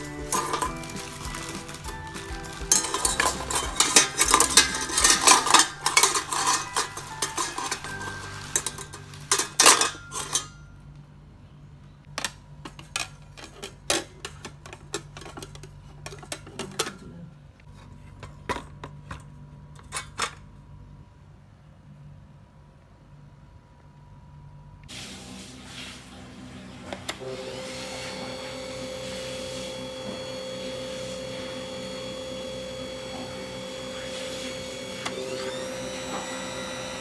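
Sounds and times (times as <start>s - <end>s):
plastic wrap rustling: 0.0s - 10.4s
metal clinks against steel bowl: 2.5s - 10.6s.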